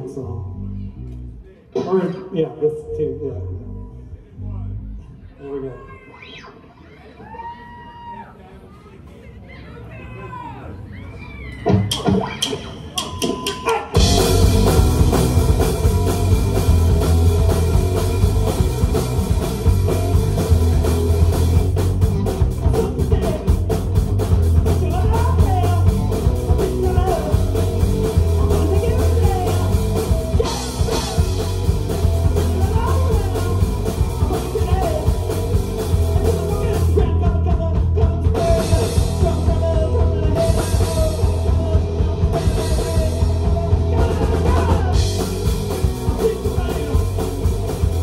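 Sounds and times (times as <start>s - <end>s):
live rock band playing: 11.6s - 48.0s.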